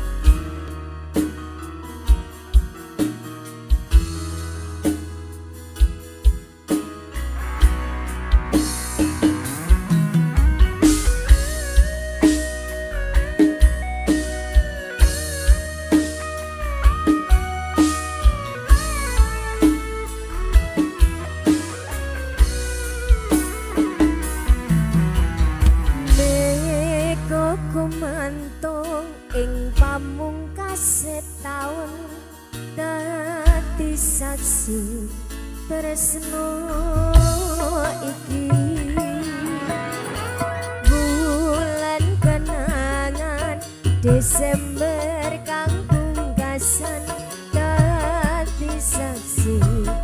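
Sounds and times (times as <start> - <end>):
band playing: 0.0 - 29.9, 35.9 - 50.0
electronic keyboard melody: 0.0 - 50.0
drum hits: 5.8 - 27.7, 37.1 - 42.8
bass line: 7.0 - 30.9, 33.5 - 50.0.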